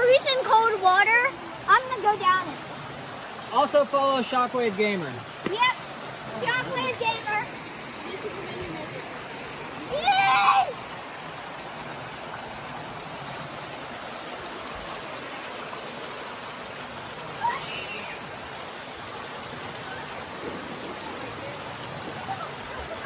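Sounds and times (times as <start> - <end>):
water rushing over rock: 0.0 - 23.0
child yelling: 9.9 - 10.8, 17.4 - 18.2.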